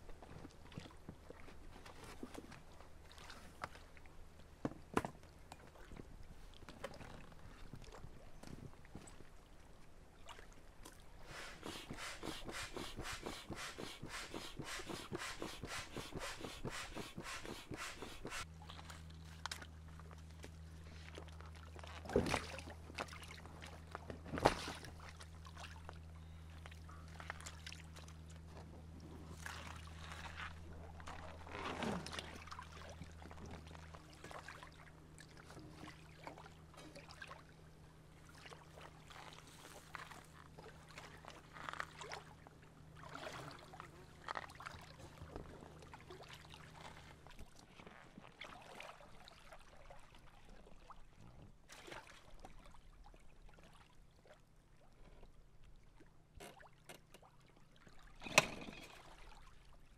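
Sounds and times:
water lapping against shore: 10.2s - 19.0s.

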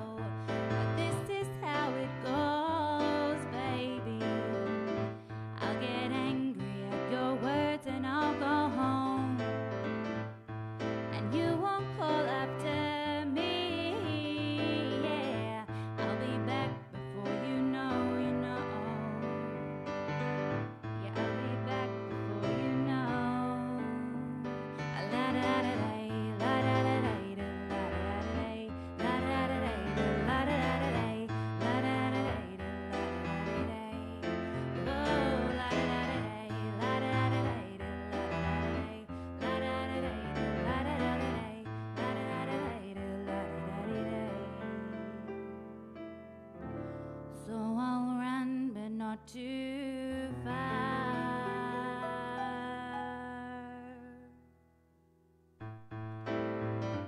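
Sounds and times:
woman singing: 0.0s - 9.6s, 11.1s - 19.8s, 21.0s - 45.3s, 47.4s - 54.4s
keyboard chords and bass: 8.8s - 11.8s, 14.0s - 47.3s, 52.4s - 57.0s.

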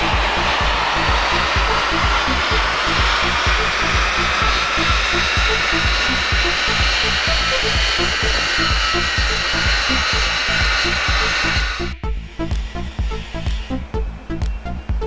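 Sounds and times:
electronic music with thumping beat: 0.0s - 15.0s.

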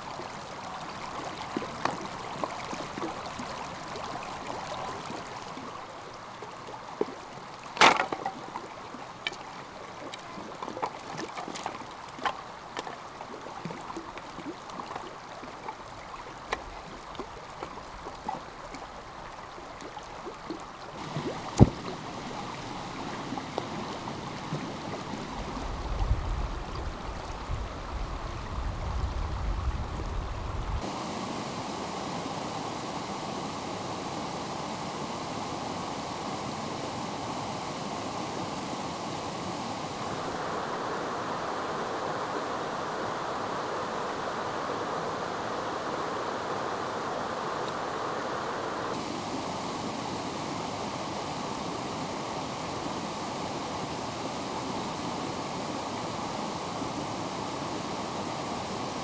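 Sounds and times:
stream running: 0.0s - 59.0s.

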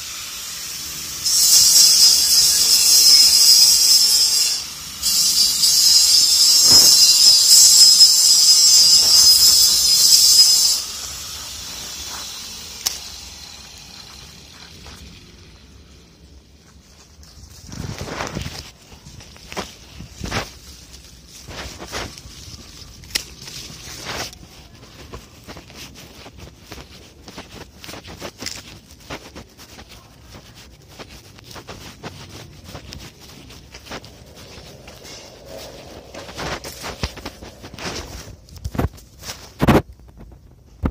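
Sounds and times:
angle grinder grinding steel: 0.0s - 15.9s
footsteps outdoors: 0.0s - 40.9s
phone rustling and scraping: 1.3s - 40.9s
wind on microphone: 30.2s - 40.9s.

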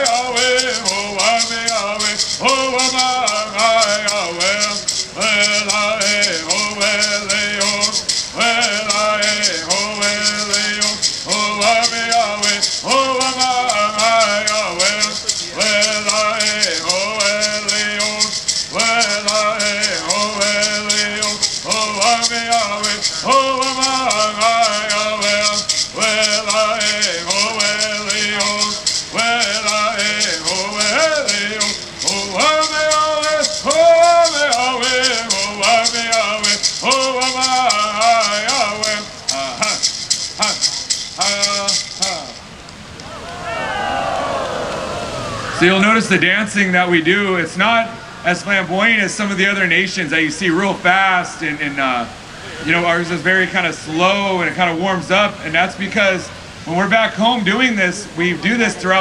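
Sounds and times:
gourd rattles shaking: 0.0s - 42.6s.

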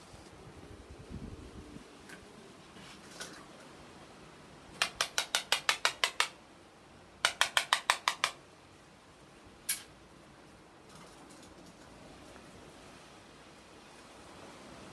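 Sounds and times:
stick tapping on glass: 7.2s - 8.4s.

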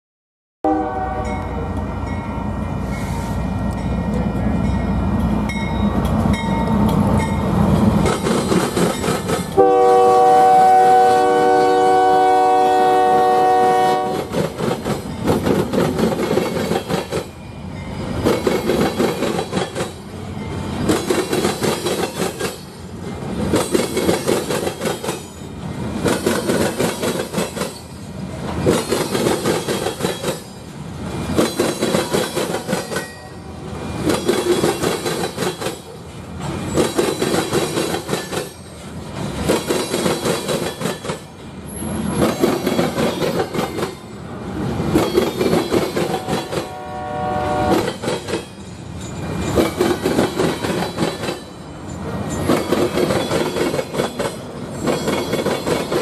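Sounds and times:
train horn blast: 0.6s - 1.7s, 9.6s - 14.3s, 46.1s - 47.9s
train wheels clattering: 5.1s - 9.6s, 14.1s - 33.2s, 33.9s - 44.2s, 44.8s - 46.8s, 47.7s - 56.0s.

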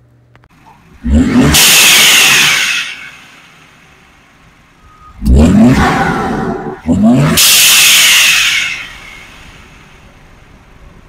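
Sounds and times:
engine revving: 1.0s - 3.8s, 4.8s - 9.9s.

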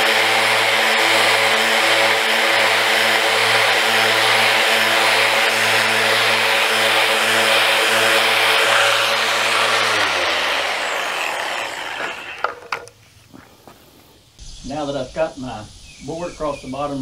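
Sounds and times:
orbital sander on wood: 0.0s - 12.8s.

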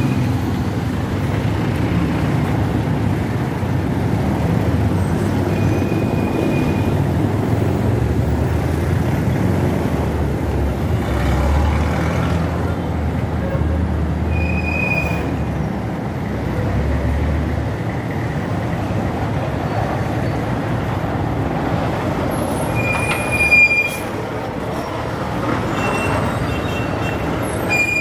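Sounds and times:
passing vehicle engines rumble: 0.0s - 28.0s
short high squeal: 14.3s - 15.4s, 22.7s - 24.2s, 25.7s - 28.0s.

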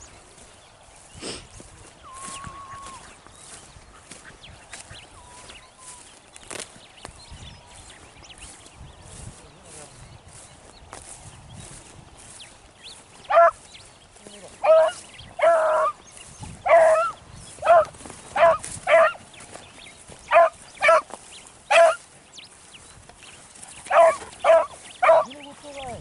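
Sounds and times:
hounds baying and barking: 2.0s - 6.2s, 13.0s - 22.2s, 23.1s - 26.0s.

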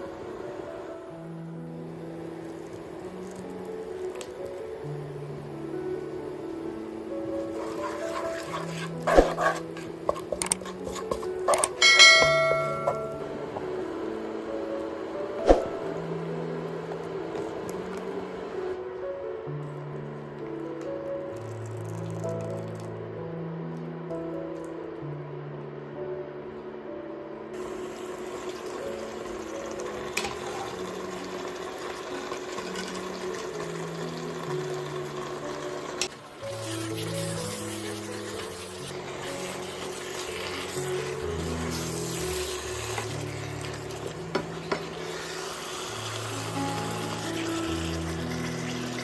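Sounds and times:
light background music: 0.0s - 49.0s
bell ding: 11.8s - 13.4s.

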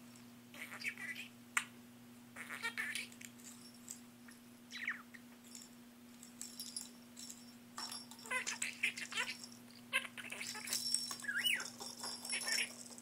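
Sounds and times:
budgerigar chirping: 4.7s - 5.1s
plastic ball rattling on keyboard: 10.5s - 13.0s.

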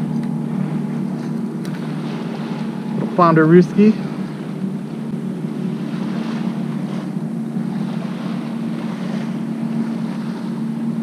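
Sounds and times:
shallow water lapping: 0.0s - 11.0s
steady low hum: 0.0s - 11.0s
water swishing: 0.0s - 11.0s.

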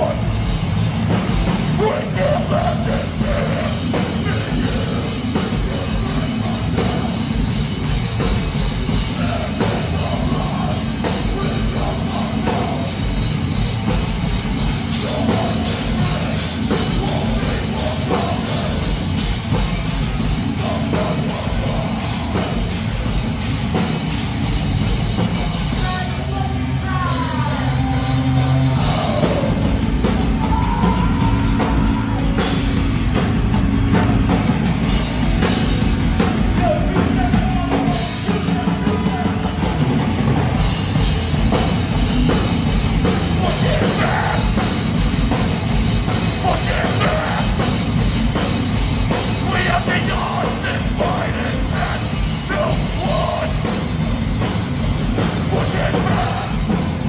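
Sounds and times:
heavy rock band playing: 0.0s - 57.0s
pounding drum kit: 0.0s - 57.0s
person singing: 1.8s - 7.2s, 43.0s - 44.8s, 46.3s - 47.8s, 49.2s - 53.8s, 55.2s - 56.8s.

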